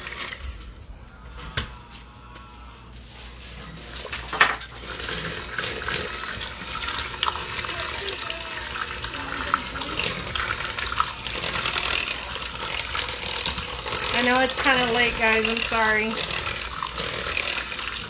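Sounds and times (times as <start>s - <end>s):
electric hand mixer running: 4.4s - 18.0s.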